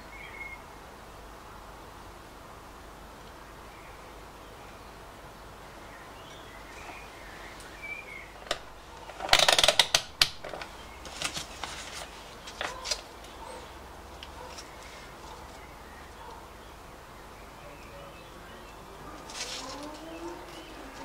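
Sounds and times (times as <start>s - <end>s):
faint bird chirps: 0.0s - 0.7s.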